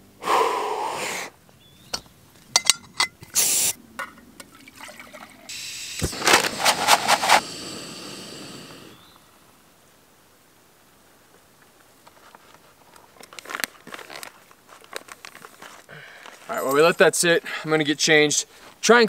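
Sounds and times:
gas burner hissing: 3.4 - 3.8, 5.5 - 9.2
rush of noise: 5.6 - 9.0.

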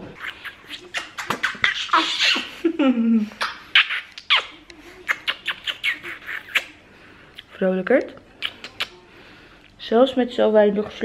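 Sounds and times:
kisses smacking: 0.1 - 2.5, 3.4 - 6.8, 7.4 - 9.0
baby squealing: 0.2 - 2.5.

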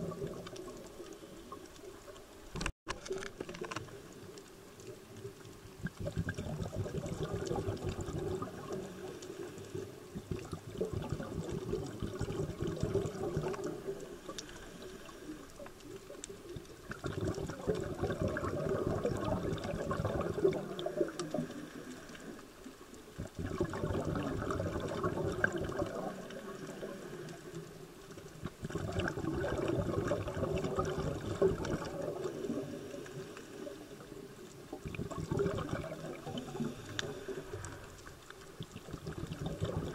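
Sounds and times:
bubbles gurgling: 0.0 - 2.4, 4.1 - 39.9
diver breathing through regulator: 36.2 - 38.2.

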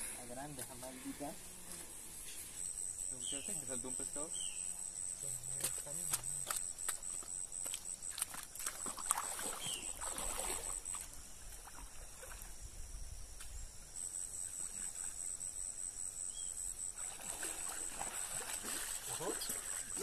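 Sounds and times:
high pulsing insect trill: 0.0 - 20.0
moving water: 5.4 - 12.8, 14.2 - 15.5, 16.8 - 20.0.

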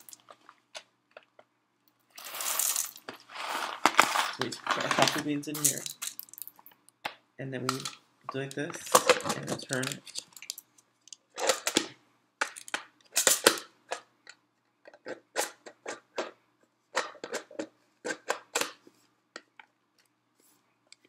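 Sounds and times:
coffee beans rattling in a hopper: 2.2 - 6.5.

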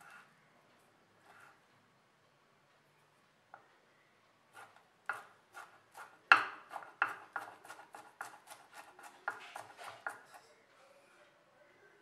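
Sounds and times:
knife chopping on wooden board: 4.7 - 10.4.

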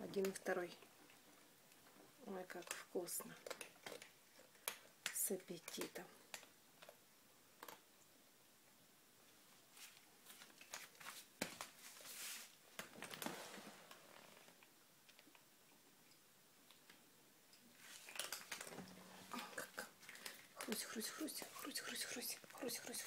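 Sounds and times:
cats crunching dry kibble: 0.2 - 7.9, 9.8 - 15.5, 16.6 - 23.0.

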